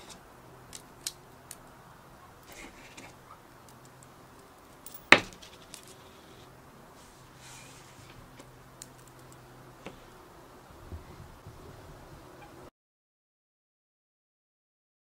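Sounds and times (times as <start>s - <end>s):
coins clicking onto a magnet: 3.6s - 6.0s.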